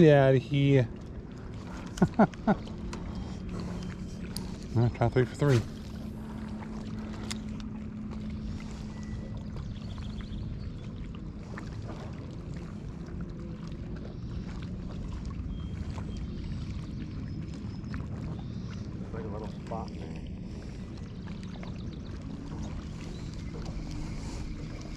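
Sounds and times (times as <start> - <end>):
boat rumble and hum: 0.0 - 24.9
steady low tone: 0.0 - 24.9
faint light ticks: 7.1 - 7.7.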